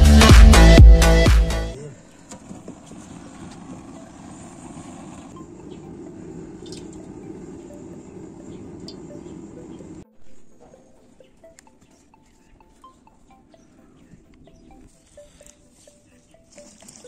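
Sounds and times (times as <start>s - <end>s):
fire crackles: 2.2s - 10.0s
wood fire burning: 2.2s - 10.0s
electronic intro music: 3.8s - 17.0s.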